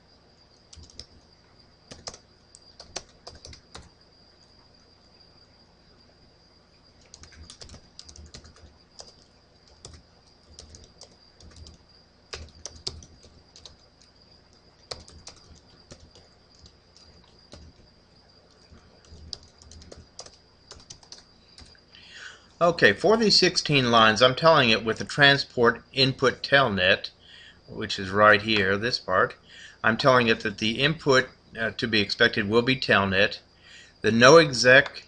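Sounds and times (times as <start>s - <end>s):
faint high-pitched whine: 0.0s - 35.0s
keyboard typing: 0.6s - 1.2s, 1.9s - 3.9s, 7.0s - 17.8s, 18.4s - 21.8s.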